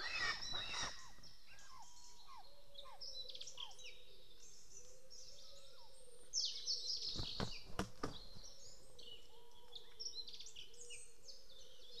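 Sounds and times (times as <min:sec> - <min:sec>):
songbirds singing: 0:00.0 - 0:12.0
dull knocks: 0:07.2 - 0:08.3.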